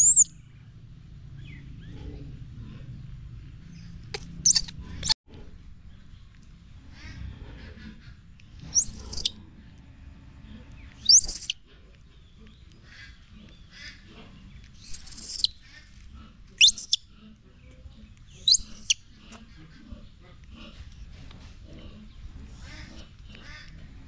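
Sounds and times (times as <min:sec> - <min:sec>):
baby monkey squealing: 0:00.0 - 0:00.3, 0:04.4 - 0:05.2, 0:08.7 - 0:09.3, 0:11.0 - 0:11.6, 0:14.8 - 0:15.6, 0:16.6 - 0:17.0, 0:18.4 - 0:19.0.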